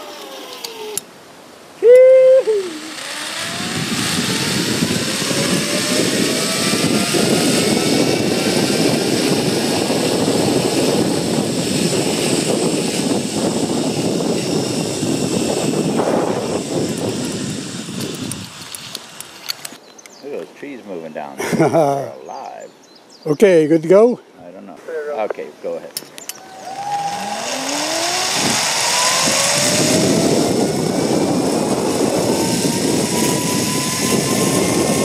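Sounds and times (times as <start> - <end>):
zipline pulley whine: 0.0 - 19.8, 26.2 - 35.0
wind rushing: 2.5 - 19.0, 26.3 - 35.0.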